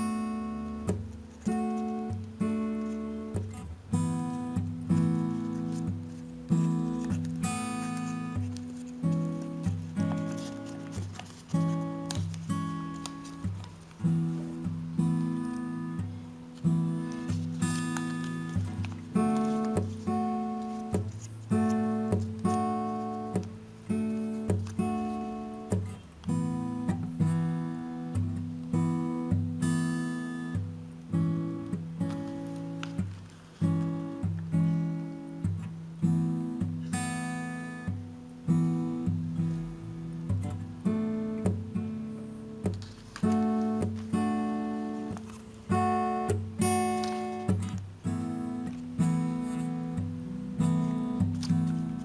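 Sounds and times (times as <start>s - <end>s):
acoustic guitar strumming chords: 0.0s - 52.0s.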